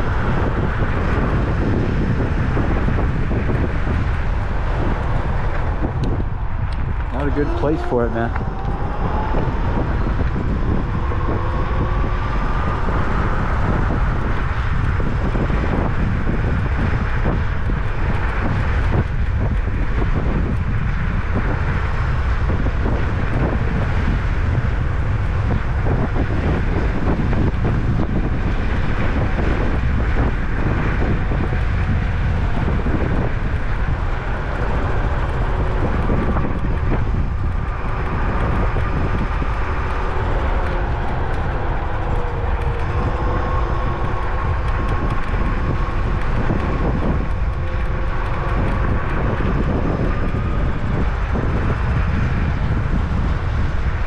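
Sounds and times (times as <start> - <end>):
wind buffeting microphone: 0.0 - 54.0
electric motor whine: 1.8 - 17.0, 26.2 - 53.7.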